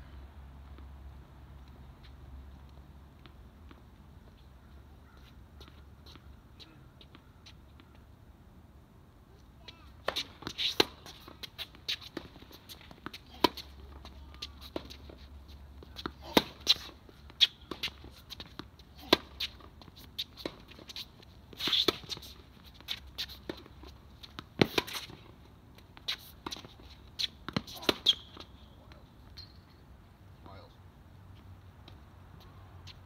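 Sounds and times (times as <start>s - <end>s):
tennis ball bouncing on court: 9.6s - 21.0s, 21.6s - 29.5s
racquet striking tennis ball: 16.0s - 19.6s.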